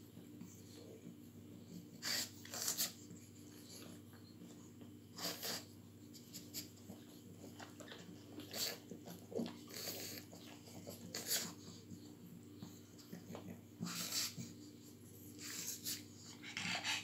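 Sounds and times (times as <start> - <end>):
dogs snuffling and breathing: 0.0 - 17.0
puppies nursing: 0.0 - 17.0.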